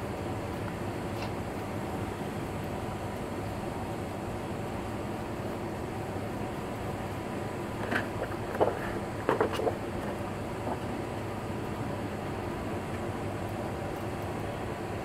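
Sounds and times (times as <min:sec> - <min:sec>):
background hum and hiss: 0:00.0 - 0:15.0.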